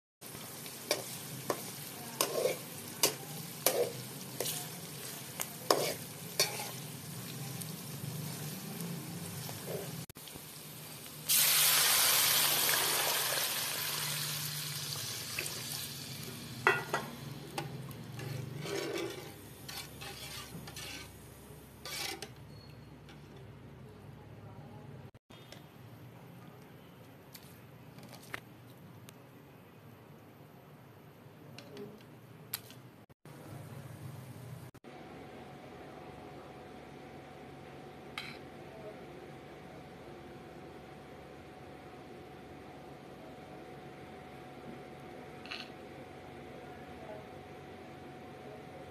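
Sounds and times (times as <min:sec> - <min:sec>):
onions sizzling in hot oil: 0:00.2 - 0:22.2
metal spatula scraping pot: 0:00.9 - 0:06.9, 0:16.7 - 0:23.4, 0:38.2 - 0:38.4.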